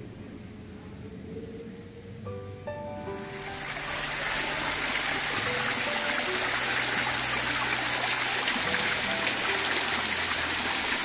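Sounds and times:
stream trickling over rocks: 0:03.2 - 0:11.0.

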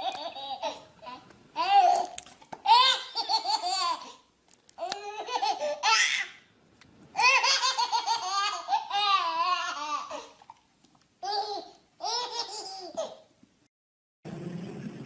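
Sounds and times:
baby laughing: 0:00.0 - 0:06.4, 0:07.2 - 0:10.4, 0:11.2 - 0:13.3.

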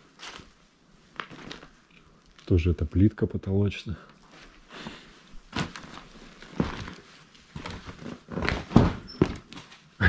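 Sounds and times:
footsteps crunching rubble: 0:05.4 - 0:09.6.

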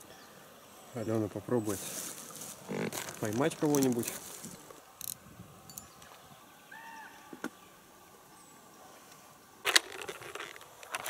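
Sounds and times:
fabric case rustling: 0:01.9 - 0:04.7, 0:09.7 - 0:11.0.

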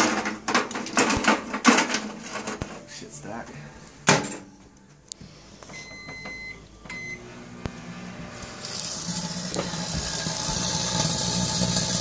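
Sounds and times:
microwave electrical hum: 0:04.6 - 0:12.0
microwave keypad beeps: 0:05.7 - 0:07.2.

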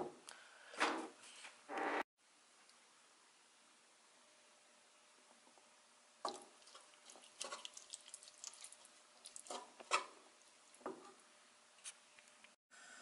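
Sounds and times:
wet squelches of stirred sauce: 0:06.2 - 0:11.2.

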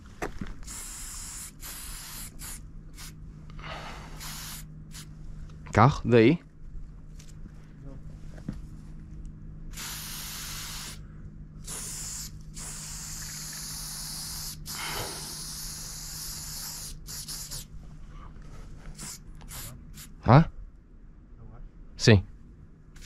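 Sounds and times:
spray paint can hissing: 0:00.6 - 0:03.2, 0:04.2 - 0:05.1, 0:09.7 - 0:11.0, 0:11.6 - 0:17.7, 0:18.9 - 0:20.1.

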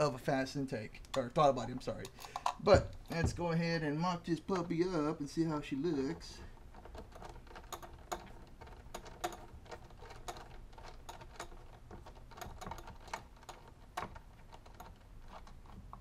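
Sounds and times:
metal parts clicking and tapping: 0:01.0 - 0:03.5, 0:06.0 - 0:16.0.

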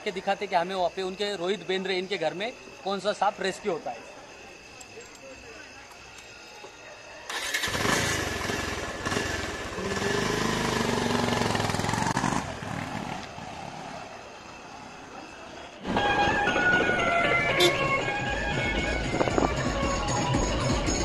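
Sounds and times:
motorcycle engine starting and revving: 0:07.3 - 0:14.3
music: 0:15.8 - 0:21.0.

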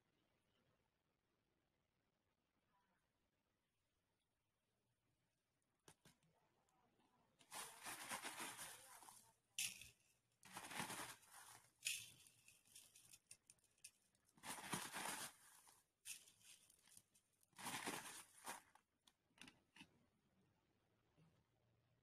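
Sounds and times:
crushed glass crunching: 0:10.5 - 0:18.7.

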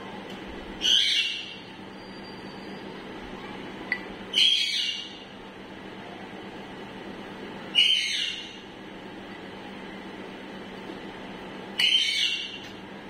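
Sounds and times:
steady low hum: 0:00.0 - 0:13.0
parakeet squawking: 0:00.8 - 0:01.7, 0:04.3 - 0:05.2, 0:07.7 - 0:08.6, 0:11.8 - 0:12.7.

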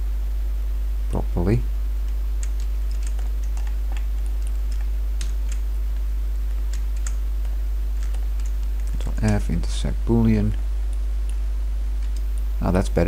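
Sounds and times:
low electrical hum: 0:00.0 - 0:13.0
keyboard and mouse clicking: 0:02.0 - 0:09.4, 0:12.0 - 0:12.5.

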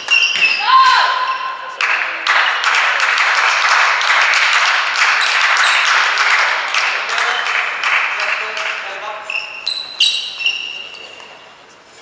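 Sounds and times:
spectators applauding: 0:01.7 - 0:09.3.

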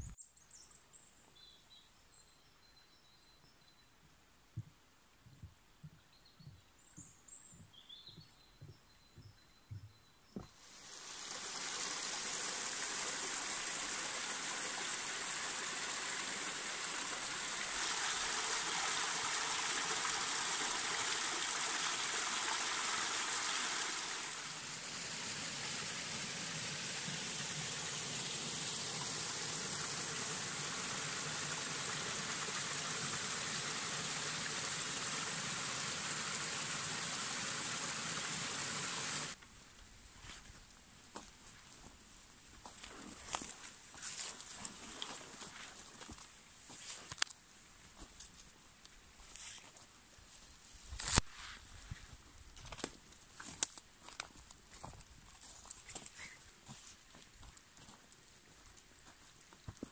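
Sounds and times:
stream trickling: 0:10.5 - 0:39.4.

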